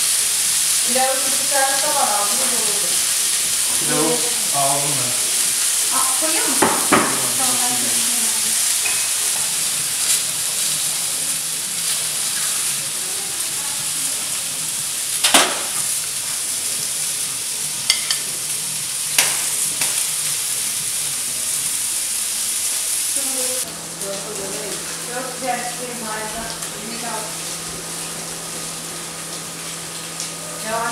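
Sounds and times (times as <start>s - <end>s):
food sizzling in a frying pan: 0.0s - 30.9s
metal utensil clinking on pan: 17.9s - 18.2s.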